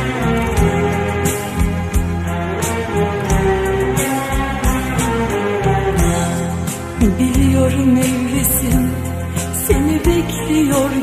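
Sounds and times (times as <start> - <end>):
slowed reverb pop ballad: 0.0 - 11.0
woman singing: 6.1 - 11.0.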